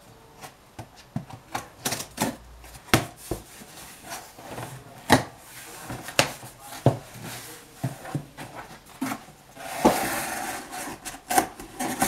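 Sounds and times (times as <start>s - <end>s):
cardboard rubbing scrape: 3.1s - 12.0s.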